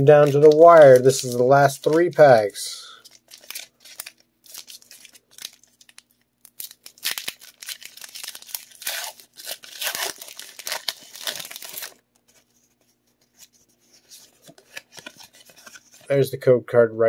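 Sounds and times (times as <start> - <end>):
foil wrapper ripping: 0.0 - 2.2, 2.9 - 12.0.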